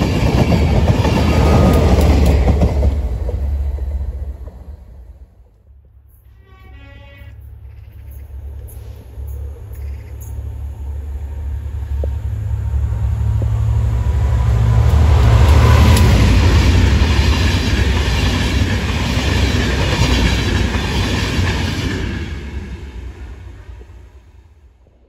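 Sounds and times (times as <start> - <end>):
train wheels clattering on rails: 0.0 - 5.6, 11.8 - 23.9
diesel locomotive engine drone: 0.0 - 25.0.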